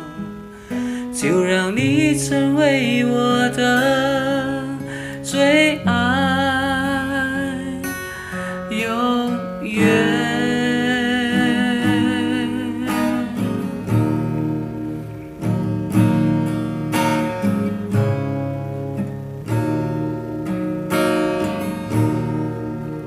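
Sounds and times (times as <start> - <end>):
man singing with vibrato: 0.0 - 13.8
strummed acoustic guitar: 0.0 - 23.0.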